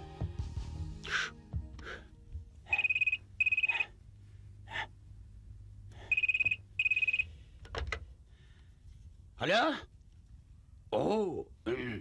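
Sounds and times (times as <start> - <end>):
telephone electronic trilling ring: 2.7 - 3.9, 6.1 - 7.4.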